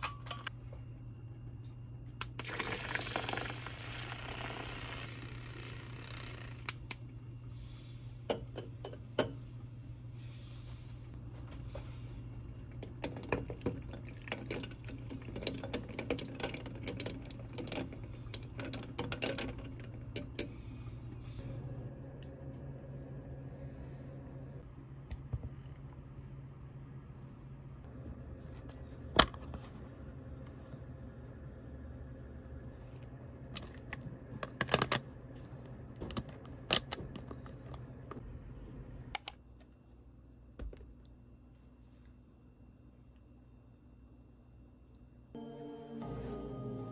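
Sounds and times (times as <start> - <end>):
low hum: 16.7 - 39.4, 42.4 - 46.9.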